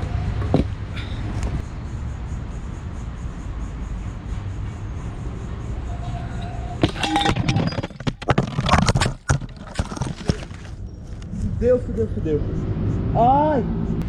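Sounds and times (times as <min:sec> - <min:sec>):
scooter crashing: 0:06.0 - 0:10.8.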